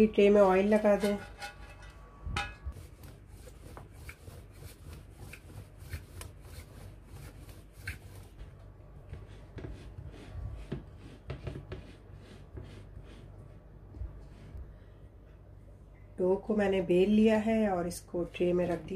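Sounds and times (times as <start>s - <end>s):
hands pressing dough: 2.7s - 14.5s
rolling pin rolling dough: 2.7s - 14.6s.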